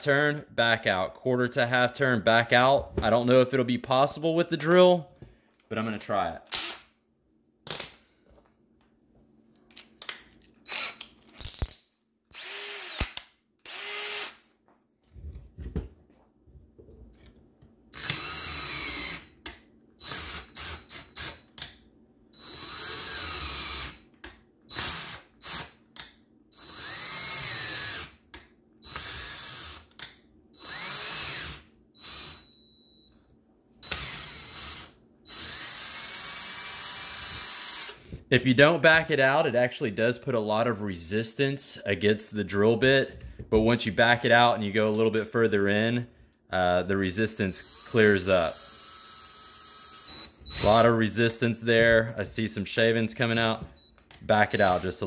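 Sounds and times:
cordless drill running in bursts: 12.4s - 13.0s, 13.7s - 14.3s, 18.0s - 19.2s, 22.4s - 24.0s, 26.6s - 28.1s, 28.8s - 29.8s, 30.6s - 32.6s, 33.8s - 38.0s, 47.6s - 50.8s.

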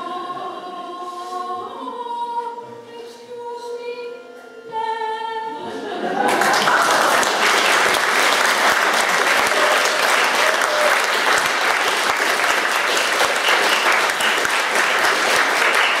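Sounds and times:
audience applauding: 6.2s - 16.0s.

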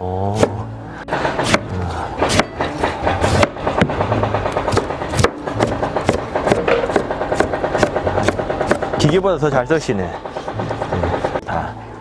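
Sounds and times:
background music or machine noise: 0.0s - 12.0s
knife striking cutting board: 1.2s - 9.2s.

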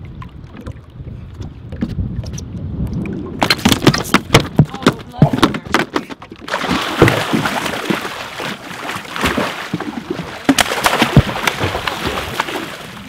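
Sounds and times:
water splashing and slapping: 0.0s - 13.0s
shark thrashing knocks and thumps: 3.4s - 12.7s.

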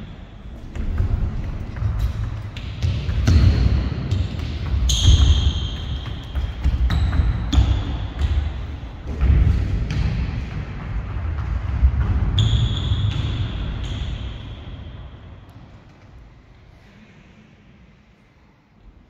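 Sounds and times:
sneakers squeaking: 0.0s - 10.5s, 11.3s - 15.6s.

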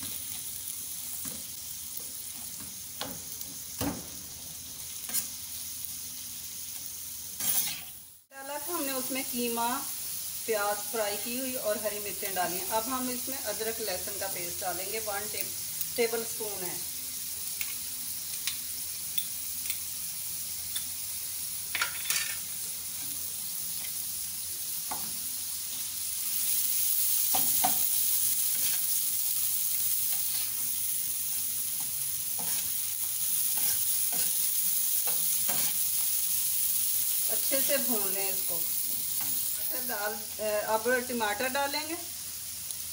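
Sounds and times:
meat sizzling on a pan: 0.0s - 42.9s
spatula scraping and knocking pan: 31.8s - 34.4s.

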